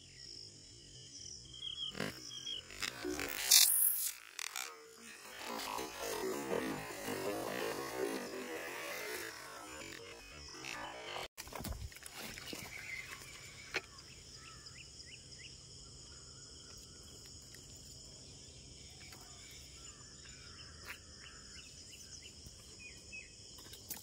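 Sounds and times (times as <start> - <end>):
high-pitched insect drone: 0.0 - 11.3.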